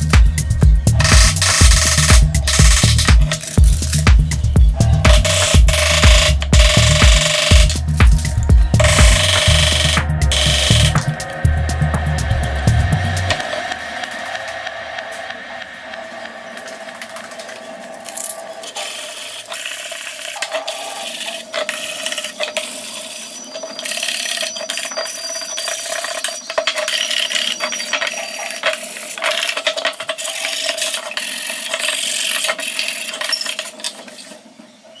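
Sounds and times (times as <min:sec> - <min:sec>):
wooden pieces knocking and scraping: 0:23.8 - 0:34.2.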